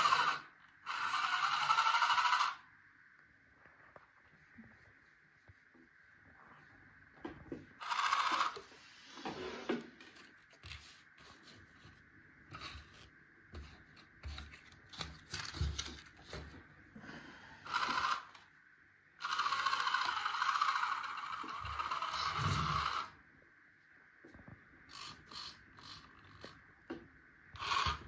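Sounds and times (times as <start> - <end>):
small electric gear motor whirring: 0.0 - 2.6, 7.8 - 8.7, 17.6 - 18.4, 19.2 - 23.2, 24.9 - 26.6, 27.6 - 28.0.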